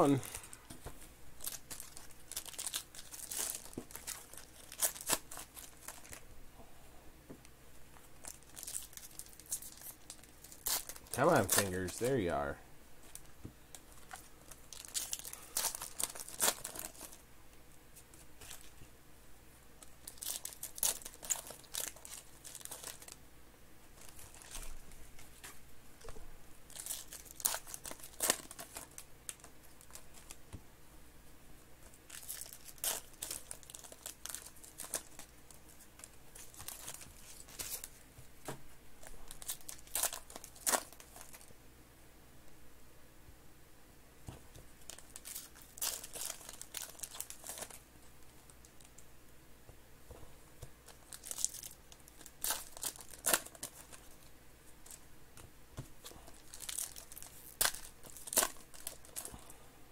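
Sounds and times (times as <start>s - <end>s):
plastic wrappers crinkling and tearing: 1.4s - 6.3s, 8.1s - 17.2s, 18.0s - 18.8s, 19.8s - 23.2s, 23.9s - 30.4s, 31.8s - 38.0s, 39.0s - 41.5s, 44.6s - 49.0s, 50.6s - 55.0s, 56.0s - 59.3s
cards being handled: 8.8s - 12.4s.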